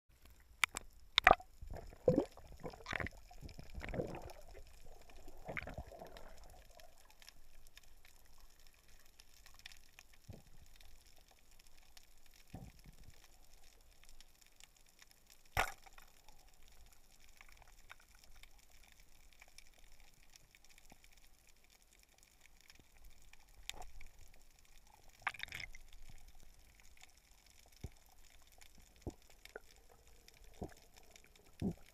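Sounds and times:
water swishing and gurgling underwater: 0.1s - 31.9s
faint clicks: 0.2s - 1.5s.

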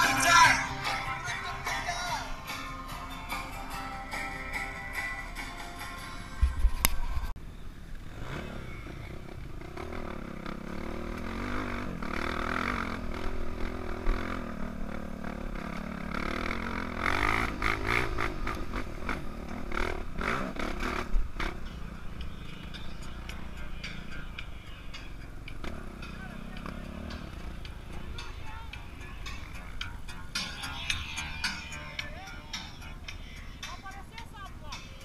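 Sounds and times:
dirt bike engine revving: 0.0s - 1.8s, 8.1s - 33.7s.

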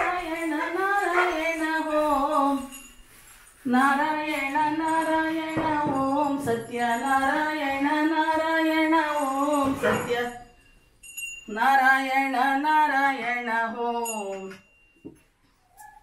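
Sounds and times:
woman singing a devotional chant: 0.0s - 2.7s, 3.6s - 10.6s, 11.5s - 14.6s.

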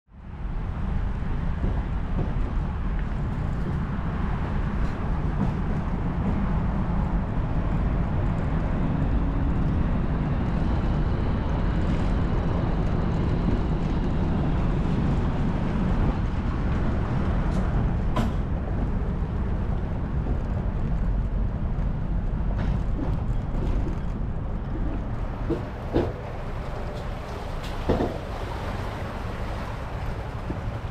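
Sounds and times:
towed boat trailer rumble: 0.3s - 30.9s.

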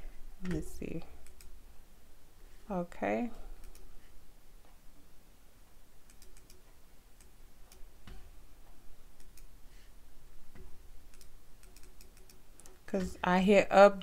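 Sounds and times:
computer mouse clicking: 1.2s - 1.6s, 3.6s - 3.9s, 6.0s - 8.2s, 9.2s - 9.5s, 10.6s - 12.9s.

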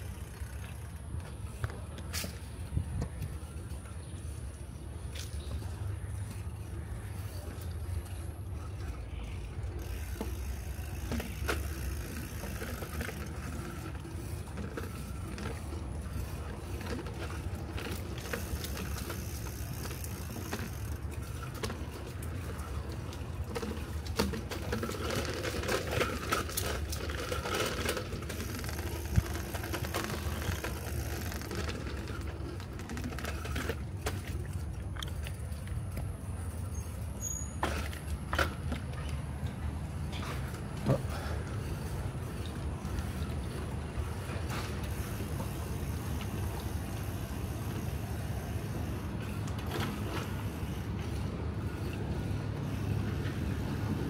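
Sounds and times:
bicycle clicks and rattles: 0.0s - 54.0s
bicycle tyres rolling: 0.0s - 54.0s.

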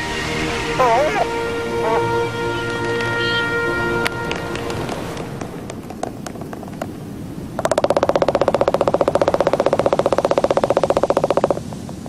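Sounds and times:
albatrosses clattering bills: 4.2s - 12.0s.

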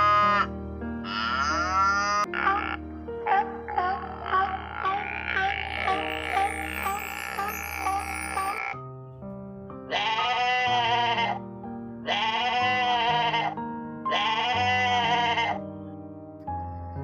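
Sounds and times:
background music low notes: 0.0s - 17.0s
goat bleating: 9.9s - 11.4s, 12.1s - 15.6s.

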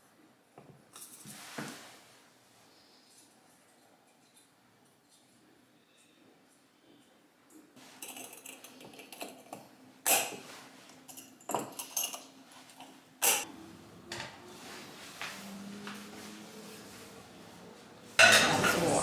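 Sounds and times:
glass jars clinking: 8.0s - 10.4s, 11.0s - 12.3s.

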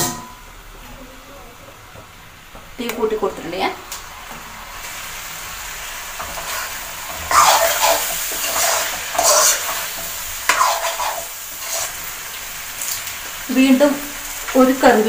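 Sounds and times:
food sizzling: 1.7s - 15.0s
spatula scraping metal pan: 6.2s - 12.0s.

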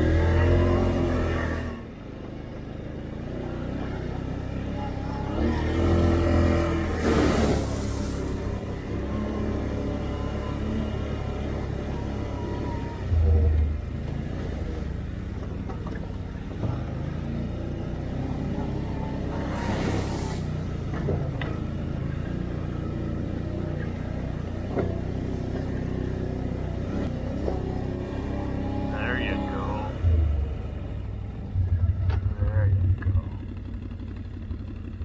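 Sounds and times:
atv engine revving: 0.0s - 35.0s.

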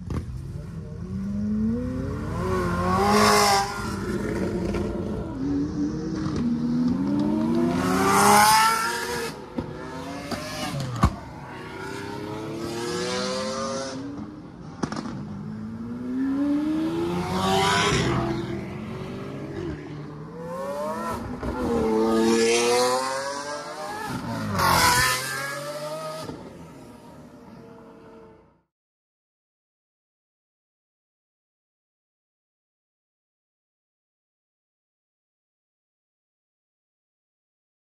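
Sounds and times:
supercars accelerating past: 0.9s - 28.4s
sharp crack: 14.8s - 15.3s.

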